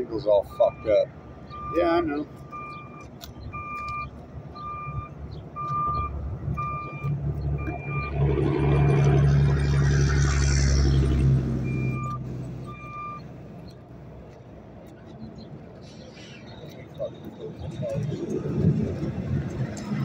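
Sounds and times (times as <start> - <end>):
backup alarm beeping: 0.4 - 8.2, 11.6 - 13.2.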